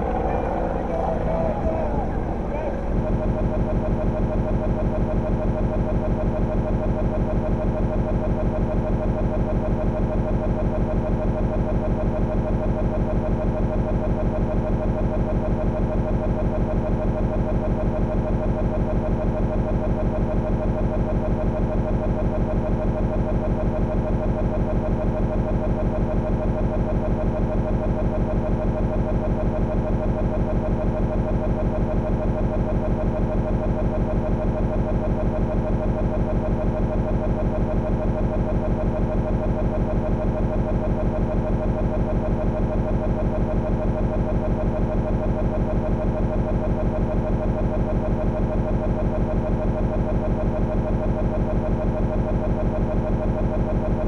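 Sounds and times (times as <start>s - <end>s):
pulsing digital buzzing drone: 0.0s - 5.8s.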